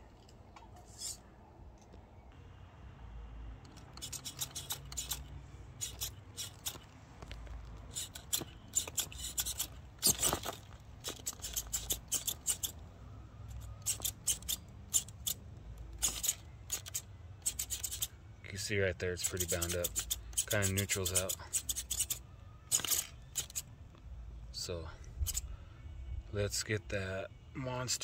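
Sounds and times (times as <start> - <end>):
rc car scraping over rocks: 3.7 - 12.8, 13.8 - 15.4, 16.0 - 23.6.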